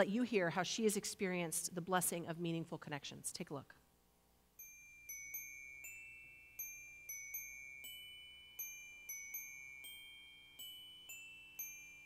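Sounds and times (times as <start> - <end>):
soft high chime notes: 4.6 - 12.0.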